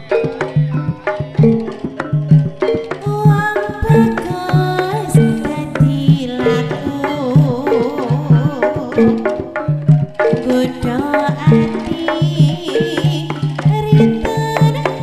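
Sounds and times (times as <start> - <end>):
hand drum strokes: 0.0 - 15.0
woman singing: 3.0 - 15.0.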